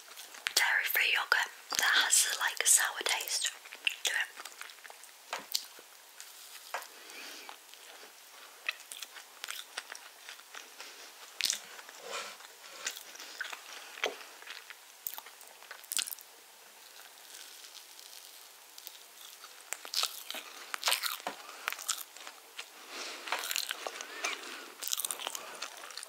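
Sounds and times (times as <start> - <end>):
close-miked eating and chewing: 0.0 - 0.8, 1.6 - 26.0
wet mouth clicks: 3.7 - 4.5.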